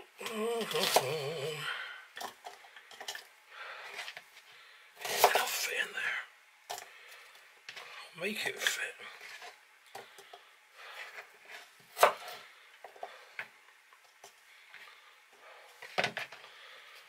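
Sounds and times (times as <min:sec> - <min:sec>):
knife cutting onion on plastic board: 0:05.0 - 0:05.6.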